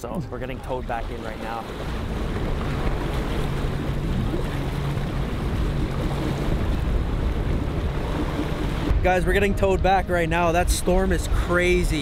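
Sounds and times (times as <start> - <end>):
motorboat engine running: 0.0 - 12.0
rushing water: 0.0 - 12.0
wind on microphone: 1.7 - 12.0.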